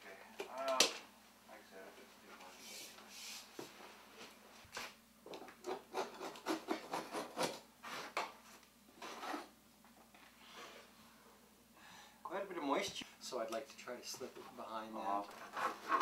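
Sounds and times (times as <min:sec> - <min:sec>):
metal scraper scraping: 0:05.6 - 0:08.1.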